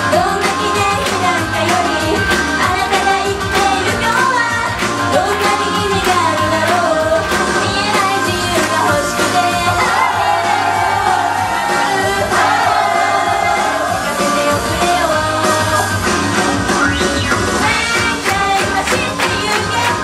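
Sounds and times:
live rock band: 0:00.0 - 0:10.1, 0:11.4 - 0:20.0
women singing together: 0:00.0 - 0:15.9, 0:17.6 - 0:20.0.

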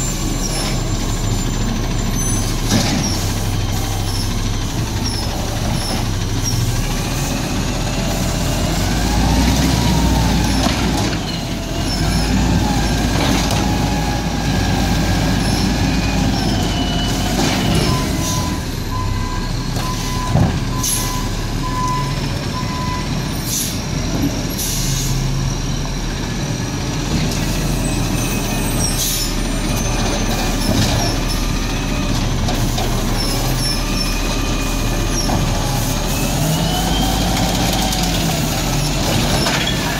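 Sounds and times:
truck engine running: 0:00.0 - 0:39.9
air brake hisses: 0:23.4 - 0:23.8, 0:24.6 - 0:25.2.

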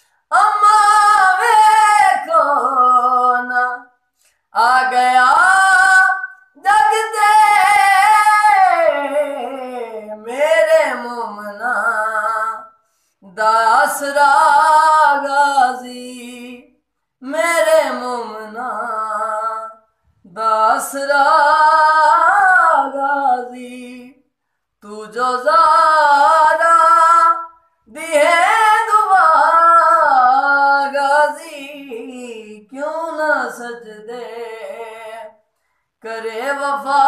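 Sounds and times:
man singing unaccompanied: 0:00.3 - 0:03.9.

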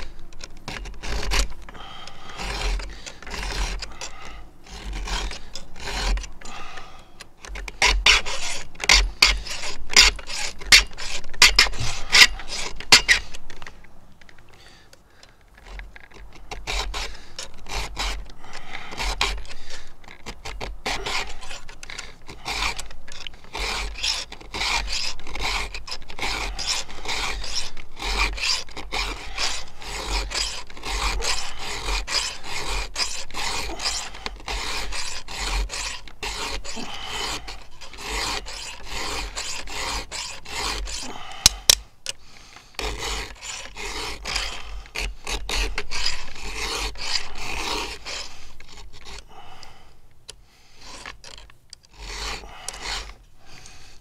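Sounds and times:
file rasping on chainsaw chain: 0:00.0 - 0:13.4, 0:14.6 - 0:49.8, 0:50.7 - 0:54.0.

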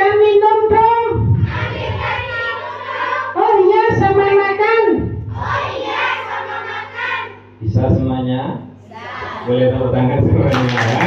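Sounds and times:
people talking: 0:07.6 - 0:11.0.

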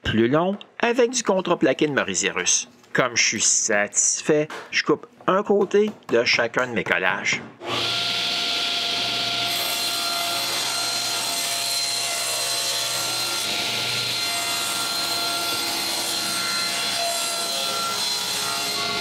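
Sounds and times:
saw blade cutting wood: 0:07.6 - 0:19.0
table saw motor hum: 0:07.6 - 0:19.0.

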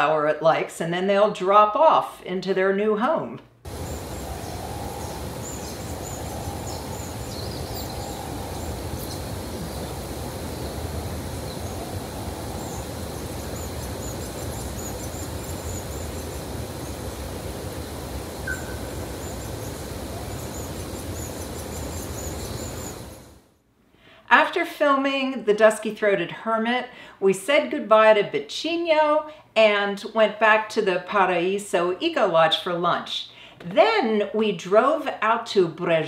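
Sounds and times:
low forest background noise: 0:03.6 - 0:24.2
small birds chirping: 0:03.7 - 0:23.3.

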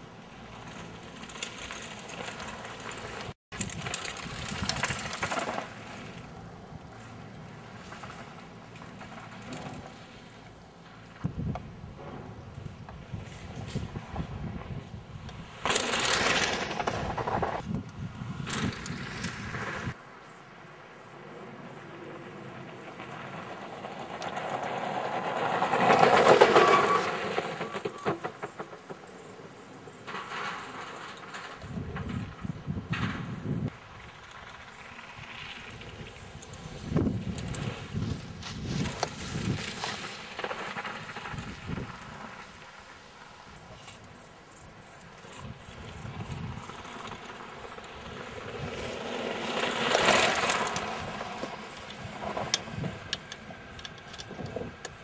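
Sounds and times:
bike rattling and clicking: 0:00.0 - 0:20.0, 0:21.4 - 0:55.0
bike tyres crunching on gravel: 0:00.0 - 0:20.0, 0:21.6 - 0:55.0.

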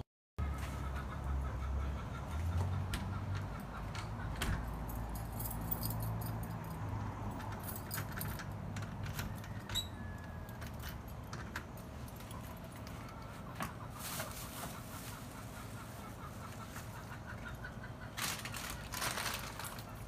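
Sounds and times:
keys jangling: 0:04.6 - 0:08.8.

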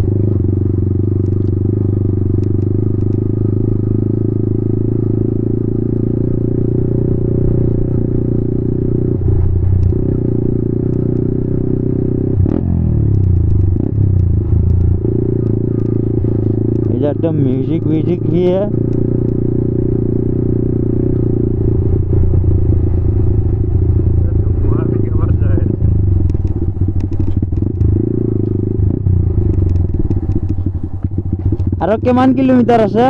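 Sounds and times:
motorcycle engine running: 0:00.0 - 0:33.0
sharp click: 0:02.4 - 0:03.2, 0:13.0 - 0:16.0, 0:26.2 - 0:28.6, 0:29.4 - 0:30.7.

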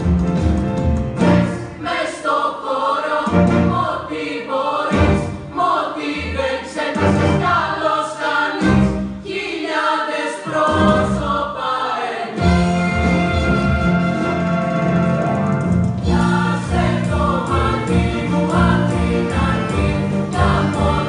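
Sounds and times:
military band playing: 0:00.0 - 0:01.8, 0:12.4 - 0:21.0
choir singing: 0:01.3 - 0:15.4, 0:16.0 - 0:21.0.

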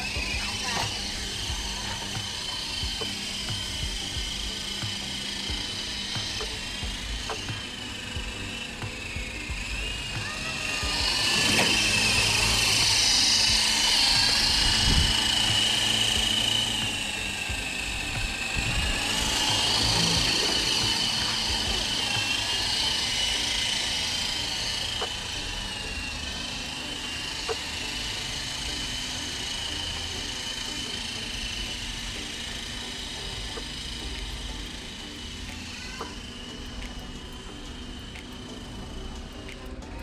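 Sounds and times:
toy helicopter motor whining: 0:00.0 - 0:40.0.

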